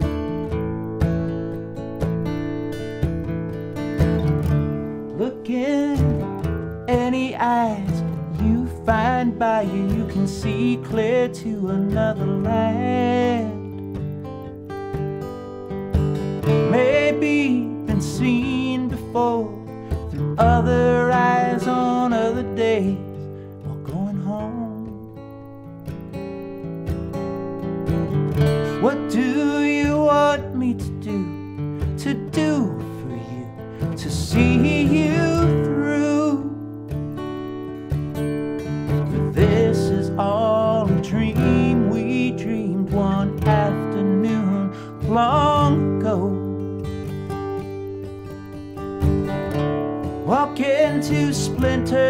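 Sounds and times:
acoustic guitar strumming: 0:00.0 - 0:52.0
man singing: 0:05.1 - 0:13.8, 0:16.4 - 0:25.1, 0:28.6 - 0:36.7, 0:39.1 - 0:46.7, 0:50.2 - 0:52.0.

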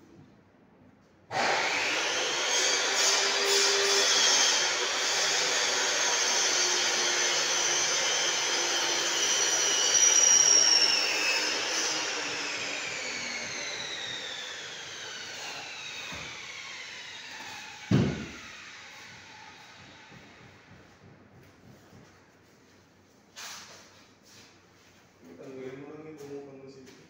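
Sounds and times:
thump: 0:17.8 - 0:18.4.

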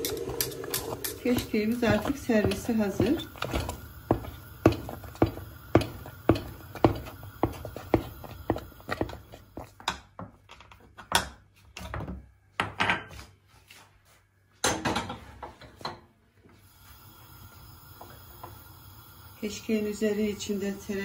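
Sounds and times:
wooden spoon knocking in metal pot: 0:00.0 - 0:10.3.

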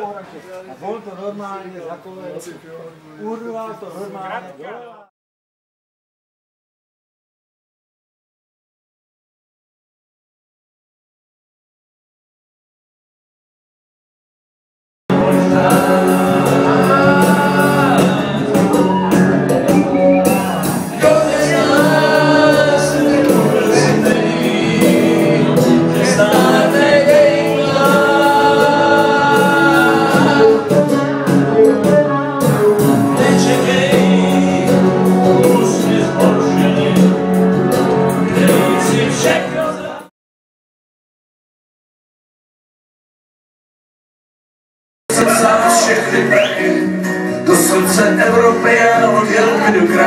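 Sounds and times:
men singing together loudly: 0:15.1 - 0:19.2, 0:20.3 - 0:40.1, 0:45.1 - 0:50.0
singalong music: 0:15.1 - 0:40.1, 0:45.1 - 0:50.0.

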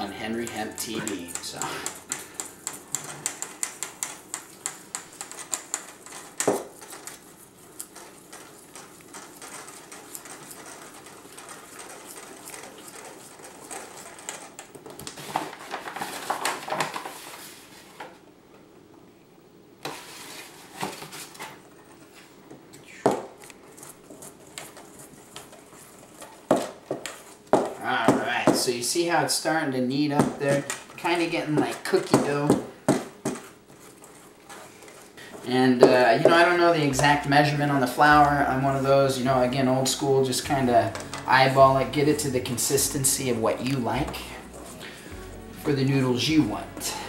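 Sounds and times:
spoon scraping bowl: 0:00.0 - 0:14.7, 0:39.8 - 0:47.0.

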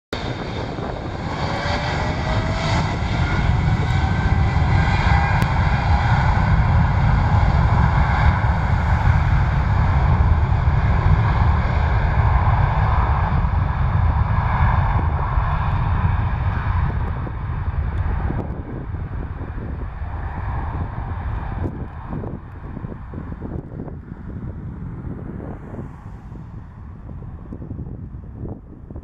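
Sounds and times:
jet engines at takeoff: 0:00.1 - 0:29.0.

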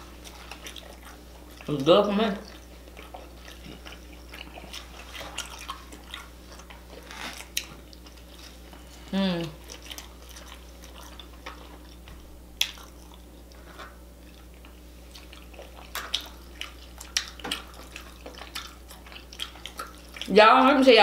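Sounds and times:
low steady hum: 0:00.0 - 0:21.0
wet lip smacks and mouth clicks: 0:09.6 - 0:13.2, 0:13.8 - 0:20.3.

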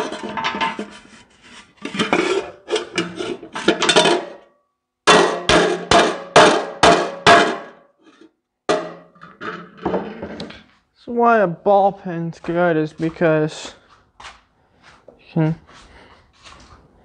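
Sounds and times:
metal scraping on metal: 0:00.0 - 0:04.4
hammer blows on sheet metal: 0:05.1 - 0:07.8.

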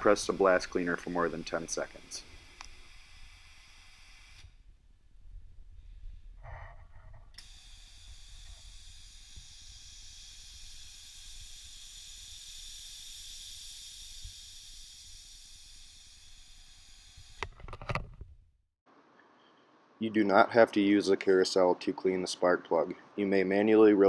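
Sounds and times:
compressed air hissing: 0:00.0 - 0:04.6, 0:07.4 - 0:17.4.

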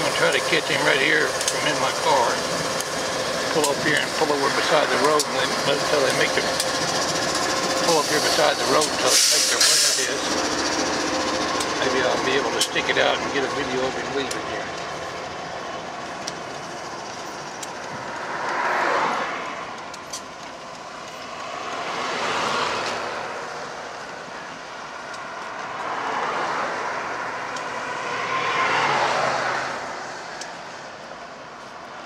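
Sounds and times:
vehicles driving past: 0:00.0 - 0:32.0.

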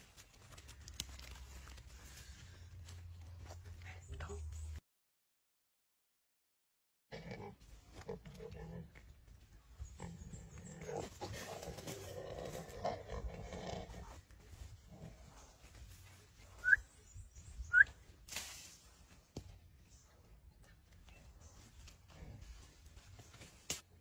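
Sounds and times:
rough low animal noise: 0:07.1 - 0:18.1, 0:18.8 - 0:24.0.

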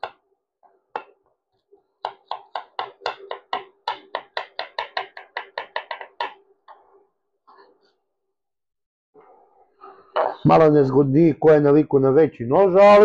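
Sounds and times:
knife chopping on wooden board: 0:02.0 - 0:06.4
knock: 0:02.0 - 0:06.4.

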